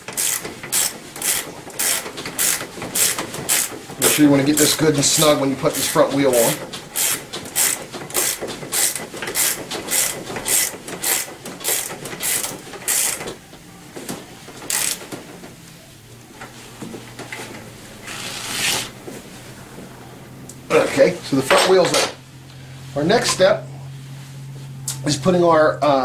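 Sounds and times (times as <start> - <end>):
ratchet wrench clicking: 0.1 - 4.7, 6.9 - 13.2, 14.7 - 15.0.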